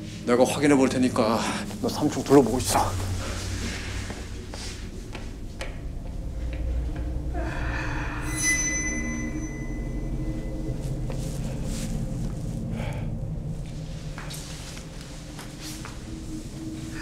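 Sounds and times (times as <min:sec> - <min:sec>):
low rumbling drone: 0:00.0 - 0:17.0
high metallic ringing shimmer: 0:07.4 - 0:12.0.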